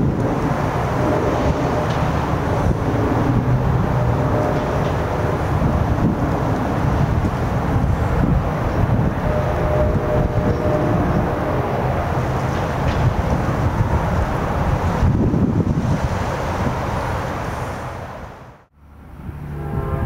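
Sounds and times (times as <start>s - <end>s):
wind buffeting microphone: 0.0s - 20.0s
train horn chord: 0.5s - 12.6s, 19.4s - 20.0s.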